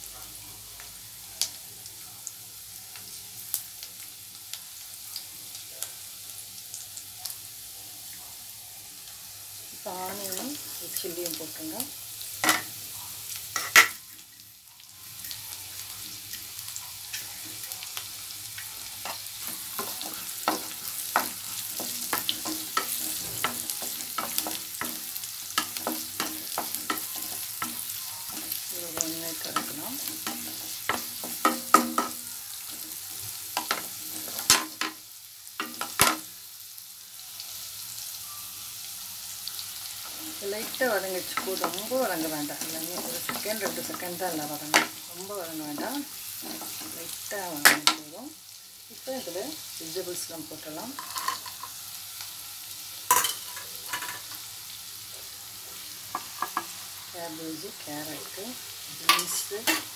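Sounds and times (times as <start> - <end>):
food sizzling in hot oil: 0.0 - 59.9
spatula scraping and knocking pan: 19.0 - 33.0, 40.1 - 45.0.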